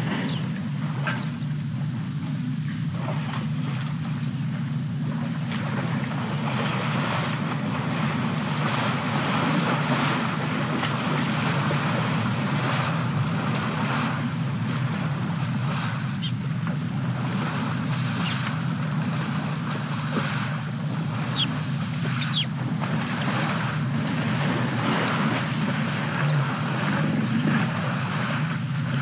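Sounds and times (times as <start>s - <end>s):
low outdoor rumble: 0.0s - 29.0s
high bird chirps: 18.2s - 18.4s, 20.2s - 20.5s, 21.3s - 21.6s, 22.2s - 22.5s.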